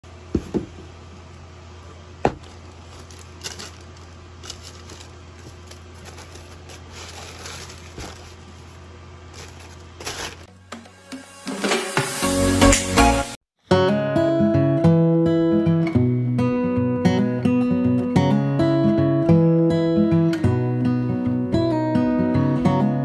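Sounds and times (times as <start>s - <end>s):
steady low hum: 0.0s - 10.5s
cardboard box knocks: 0.3s - 0.8s, 2.2s - 2.5s
tissue paper rustling: 2.4s - 10.5s.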